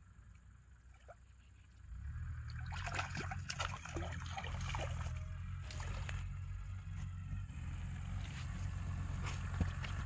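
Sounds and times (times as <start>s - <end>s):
fish splashing at water surface: 2.4s - 6.2s.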